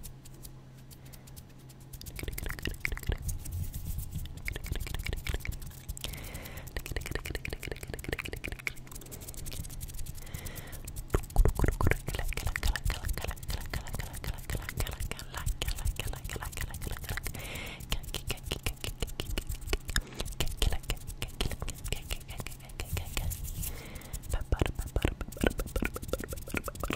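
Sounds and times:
wet mouth clicks and smacks: 2.0 - 3.4, 4.2 - 23.2, 24.3 - 26.9
breathy hisses: 9.0 - 11.0.

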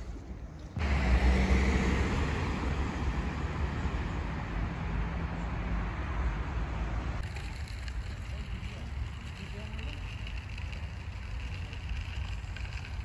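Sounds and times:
wheels rolling on paved path: 7.2 - 13.0.

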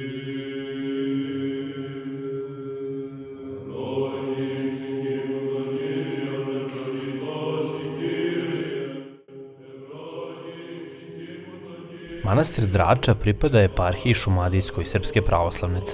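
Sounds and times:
church chant in long held notes: 0.0 - 15.9.

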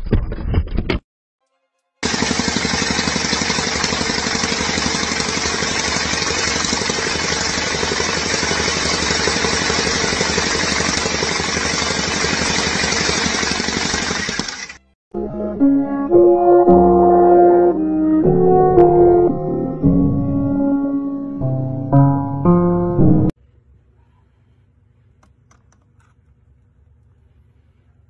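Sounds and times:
compactor engine pounding: 2.0 - 14.8.

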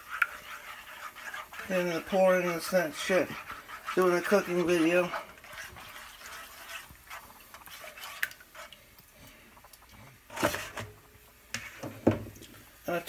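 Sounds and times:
spatula clatter: 0.0 - 8.8
spatula scraping a frying pan: 0.0 - 12.1.

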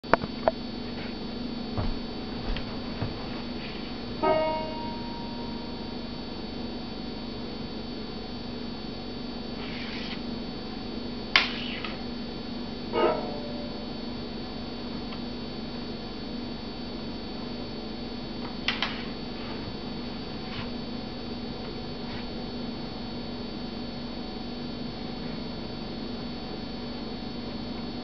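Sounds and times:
electrical hum: 0.0 - 28.0
banjo notes ringing: 4.2 - 5.4, 13.0 - 13.7.

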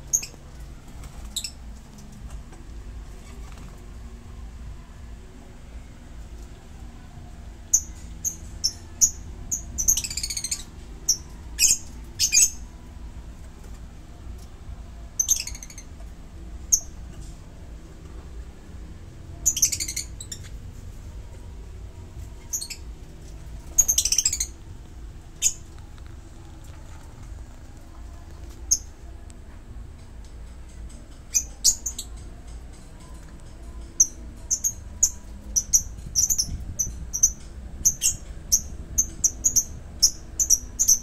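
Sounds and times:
birds chattering calls: 7.6 - 12.7, 19.3 - 20.6, 22.3 - 26.0, 30.8 - 41.0
birds chirping shrilly: 23.7 - 24.6.

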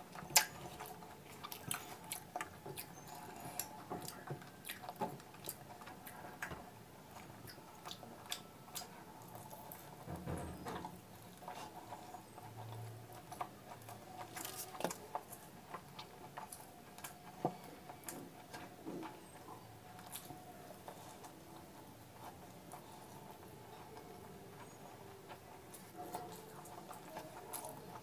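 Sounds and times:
wet chewing clicks and smacks: 0.1 - 9.8.

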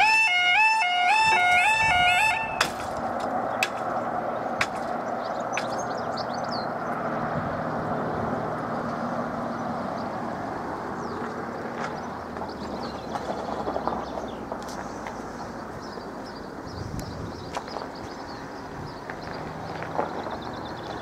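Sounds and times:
birds chirping: 1.1 - 21.0.

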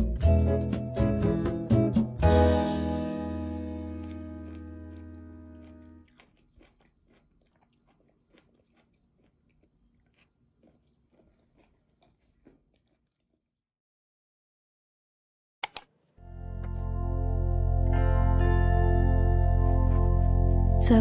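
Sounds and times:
guitar music: 0.0 - 6.0, 16.2 - 21.0
chewing: 3.5 - 13.5.

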